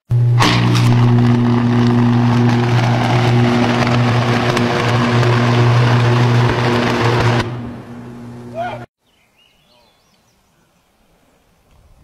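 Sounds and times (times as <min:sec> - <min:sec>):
electrical crackling: 0:00.1 - 0:08.8
electrical arcing buzz: 0:00.1 - 0:08.9.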